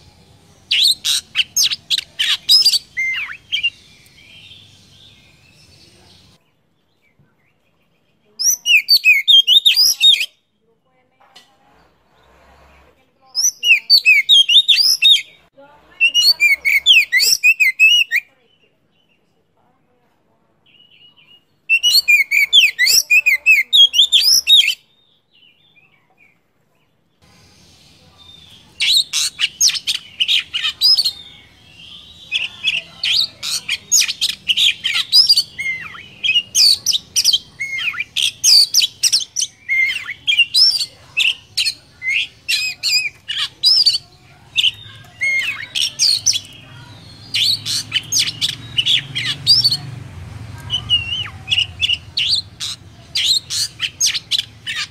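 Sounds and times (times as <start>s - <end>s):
songbird whistling and trilling: 0.6s - 5.8s, 8.4s - 10.4s, 13.4s - 18.3s, 20.7s - 25.6s, 27.6s - 49.8s, 50.7s - 54.9s.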